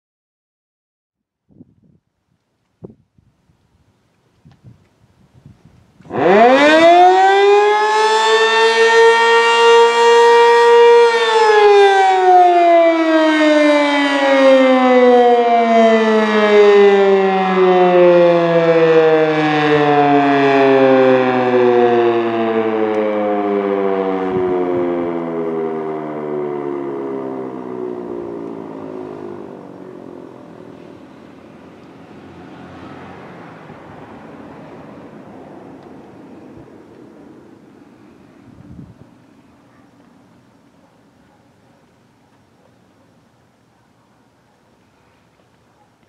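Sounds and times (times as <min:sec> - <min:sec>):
warning siren wailing: 0:06.0 - 0:40.8.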